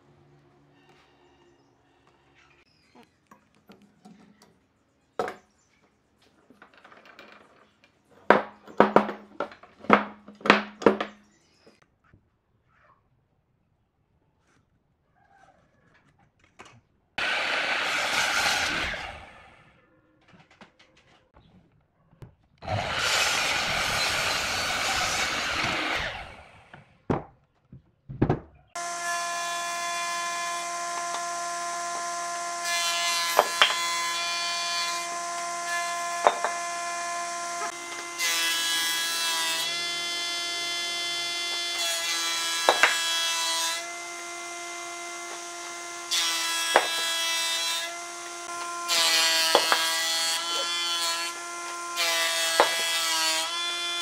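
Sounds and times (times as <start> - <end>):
miter saw cutting wood: 17.2 - 19.7, 22.6 - 26.9, 28.8 - 54.0
planer shaving wood: 17.2 - 19.7, 22.6 - 26.9, 28.8 - 54.0
motor humming: 22.6 - 26.8.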